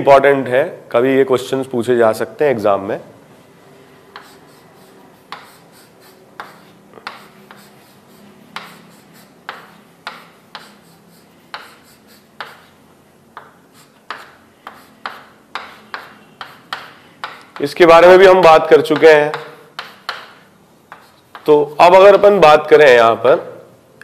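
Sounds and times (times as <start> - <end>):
scratchy writing strokes and taps: 4.1 - 17.7, 18.9 - 21.6.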